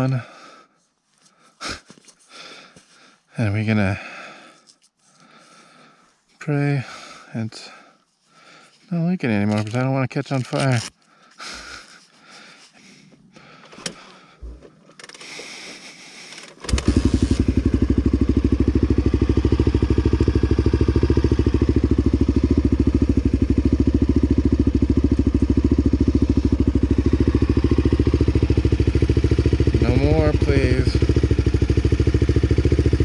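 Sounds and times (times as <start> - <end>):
soft clicks and handling noises: 9.3 - 11.0
motorcycle engine starting and idling: 13.1 - 33.0.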